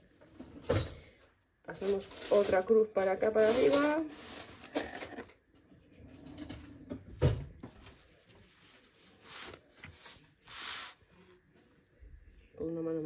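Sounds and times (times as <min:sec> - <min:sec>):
paper rustling: 0:07.7 - 0:11.6.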